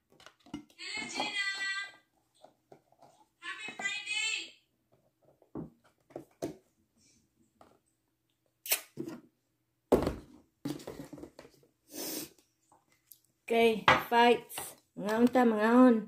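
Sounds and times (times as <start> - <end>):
cardboard tubs clicking and knocking: 0.0 - 1.8, 4.9 - 6.7, 9.9 - 11.6
cardboard tubs thudding and rustling: 10.0 - 11.5.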